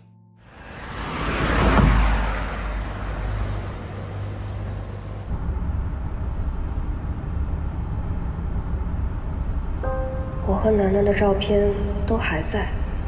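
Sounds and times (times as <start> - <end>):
bus driving away: 0.4 - 10.5
bus engine and road rumble: 0.4 - 13.0.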